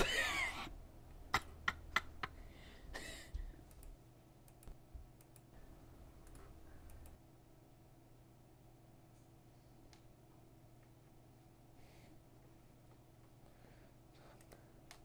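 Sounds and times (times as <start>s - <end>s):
computer mouse clicks: 3.6s - 5.5s, 6.2s - 7.2s, 14.3s - 15.0s.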